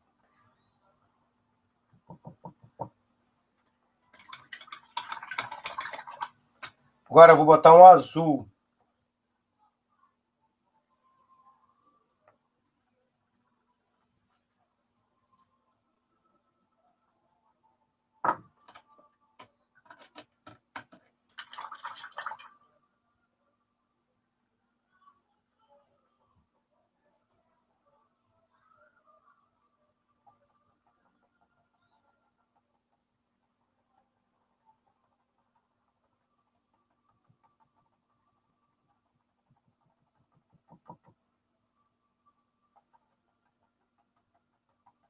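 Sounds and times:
painting tools clattering on containers: 4.0s - 6.9s, 19.8s - 22.3s
sharp knock on table: 18.2s - 18.5s.

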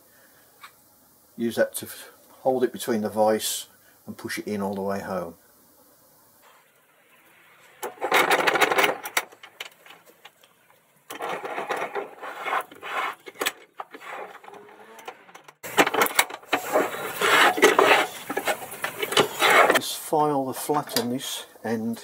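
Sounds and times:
metal parts clinking in vise: 7.9s - 10.0s
vise screw rubbing: 11.1s - 19.8s.

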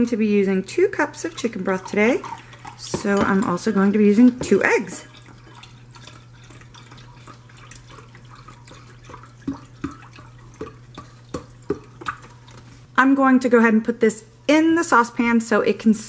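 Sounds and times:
broth pouring into glass cup: 1.1s - 12.7s.

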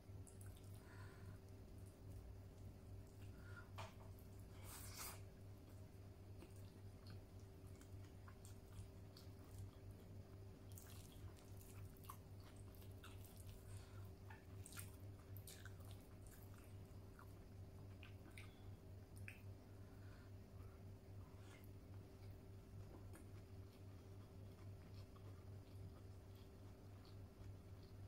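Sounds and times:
person chewing food: 4.2s - 19.4s, 21.4s - 28.0s.

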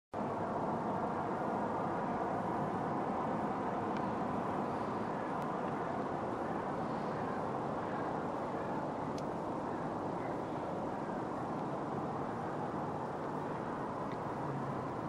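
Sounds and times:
heavy highway traffic: 0.1s - 15.0s.

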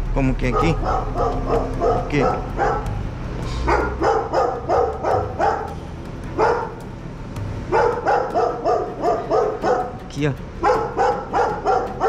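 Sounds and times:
dog barking: 0.4s - 5.8s, 6.4s - 6.8s, 7.7s - 10.0s, 10.6s - 12.0s.

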